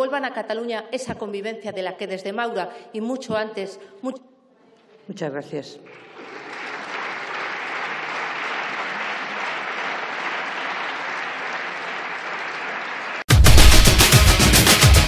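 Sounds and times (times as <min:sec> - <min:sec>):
crowd applauding: 0:05.9 - 0:15.0
loud music: 0:13.3 - 0:15.0.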